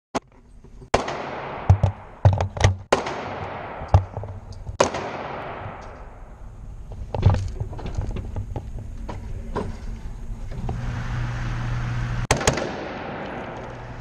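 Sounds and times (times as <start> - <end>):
rifle shots echoing: 0.9 - 2.2, 2.8 - 6.4, 12.3 - 14.0.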